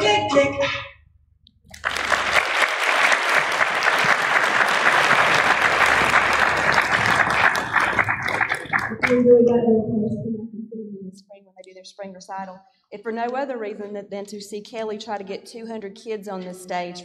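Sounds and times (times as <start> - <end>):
christmas song singing: 0.0 - 0.8
audience applauding: 1.7 - 9.2.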